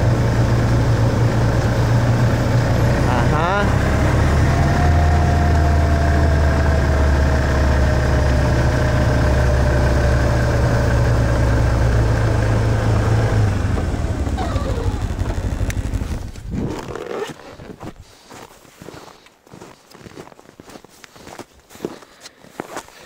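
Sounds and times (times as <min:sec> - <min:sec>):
falling whine: 0:00.0 - 0:16.8
snowmobile engine running: 0:00.0 - 0:17.7.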